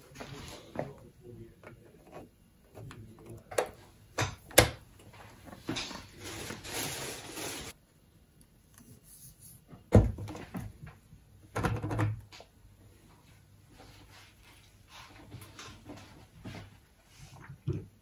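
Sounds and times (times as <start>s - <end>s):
plastic parts rustling: 5.1s - 7.8s.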